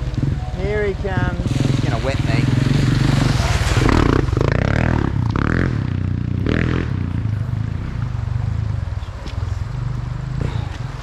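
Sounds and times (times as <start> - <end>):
water splashing: 0.0 - 4.8
dirt bike engine running: 0.0 - 11.0.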